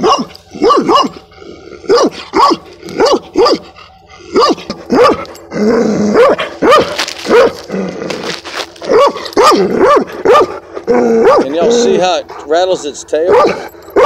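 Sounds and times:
dog barking: 0.0s - 1.3s, 1.9s - 5.3s, 6.2s - 7.7s, 8.8s - 10.6s, 11.2s - 12.1s, 13.1s - 14.0s.

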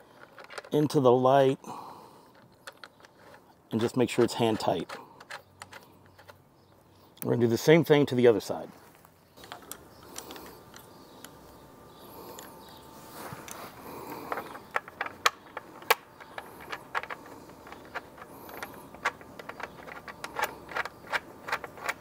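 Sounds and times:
metallic clicks of bolt threading: 2.3s - 6.4s, 14.3s - 22.0s.

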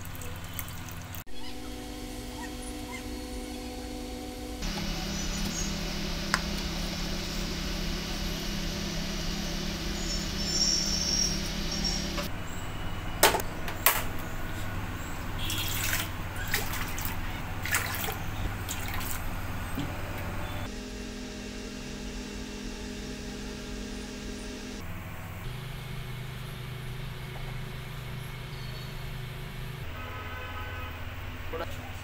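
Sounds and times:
low hum: 0.0s - 29.8s.

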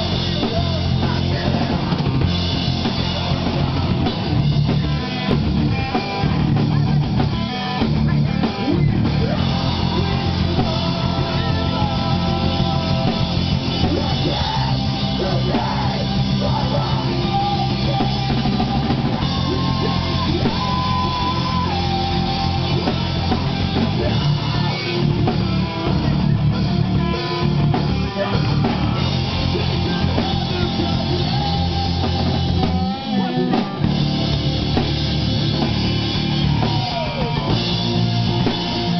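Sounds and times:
person singing: 0.0s - 34.9s, 36.3s - 38.9s
drum kit: 0.0s - 38.9s
guitar: 0.0s - 38.9s.

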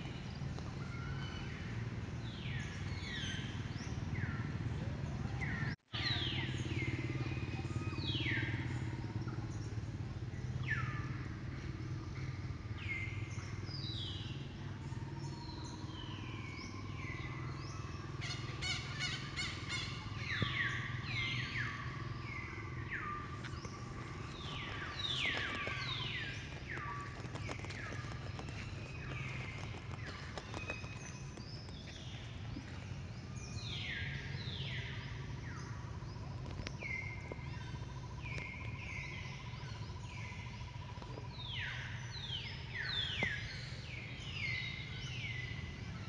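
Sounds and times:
birds chirping: 0.0s - 46.0s
steady low hum: 0.0s - 46.0s.

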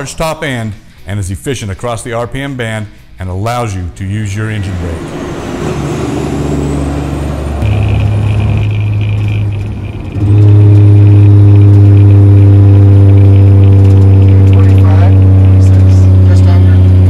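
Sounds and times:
diesel truck engine: 4.5s - 17.0s
engine brake drone: 4.6s - 17.0s.

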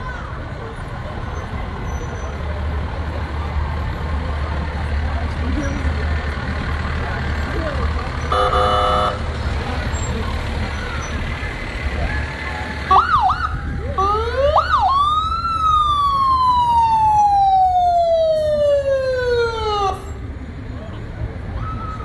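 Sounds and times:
vehicle engines rumbling: 0.0s - 22.0s
emergency siren: 12.0s - 20.3s.

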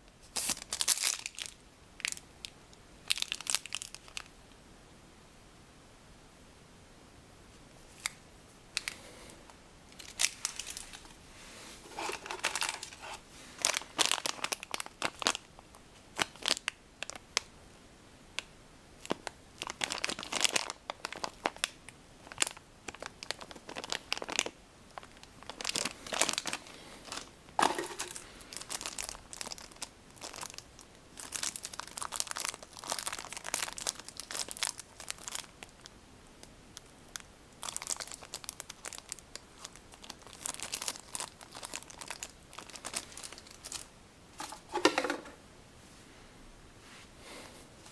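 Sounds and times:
plastic bags crinkling: 0.3s - 2.2s, 3.1s - 4.3s, 9.9s - 11.2s, 11.8s - 17.2s, 19.0s - 35.9s, 36.8s - 45.3s.

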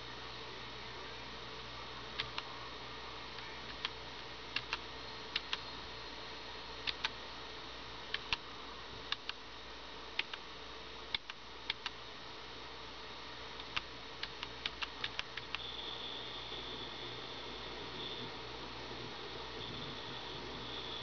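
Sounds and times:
faint steady hum: 0.0s - 21.0s
computer keyboard keys clicking: 4.6s - 4.8s, 13.6s - 15.6s.

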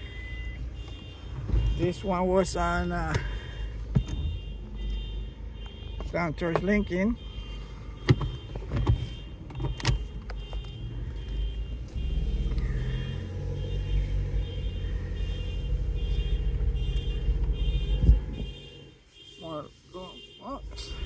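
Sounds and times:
faint high beep: 0.0s - 0.6s
car engine and road noise: 0.0s - 21.0s
man talking: 1.8s - 3.3s, 6.1s - 7.2s, 19.4s - 21.0s.

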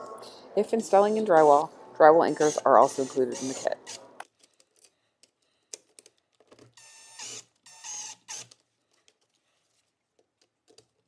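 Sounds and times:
cordless driver whirring: 2.3s - 4.2s, 6.8s - 8.6s.

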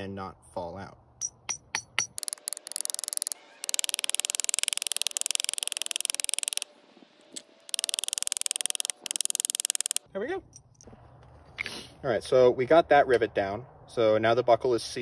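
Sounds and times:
hammer tapping on metal: 1.2s - 2.7s.

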